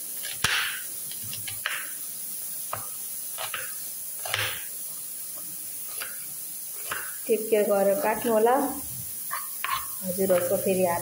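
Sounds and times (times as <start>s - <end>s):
knife slicing onion: 0.0s - 2.0s, 2.6s - 4.8s, 5.8s - 7.3s, 8.2s - 11.0s
knife tapping cutting board: 2.7s - 4.6s.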